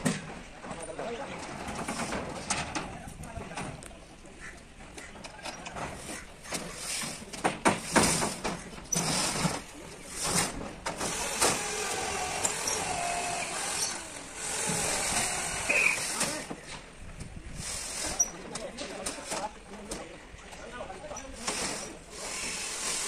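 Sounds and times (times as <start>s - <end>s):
metal sheets clanking: 0.0s - 3.8s, 5.3s - 16.8s
metal sheet scraping on metal: 7.8s - 16.5s.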